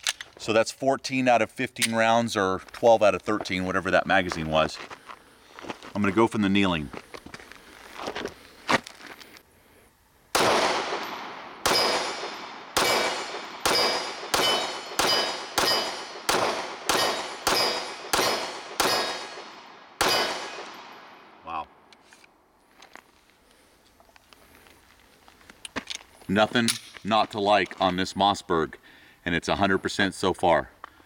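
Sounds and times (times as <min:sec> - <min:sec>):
pistol shots: 0:10.3 - 0:21.4
steel target ringing: 0:10.9 - 0:19.4, 0:20.0 - 0:20.7.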